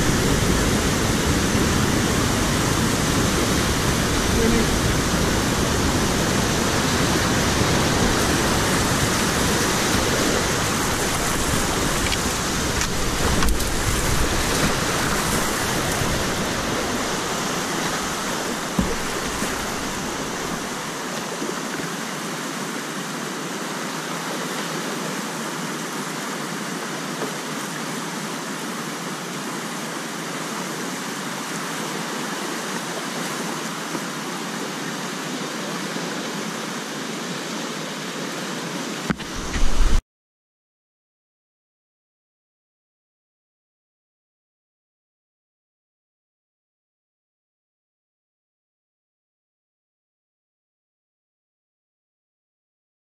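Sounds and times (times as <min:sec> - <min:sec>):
paddle splashes: 0:00.0 - 0:38.0, 0:38.8 - 0:40.0
whitewater rapids rushing: 0:00.0 - 0:40.0.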